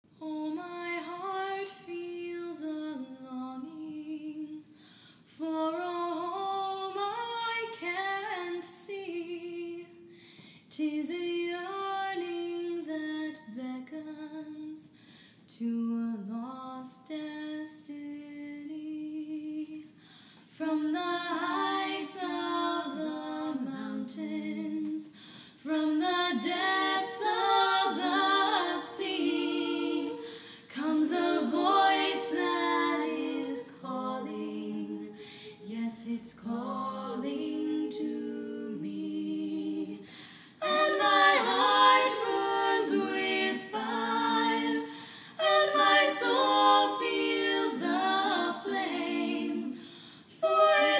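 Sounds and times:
voices singing unaccompanied: 15.6 - 50.9.

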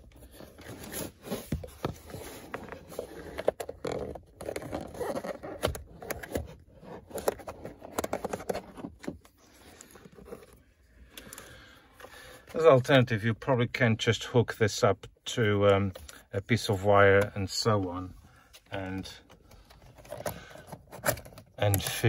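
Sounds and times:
wire scraping against plastic: 0.0 - 10.6.

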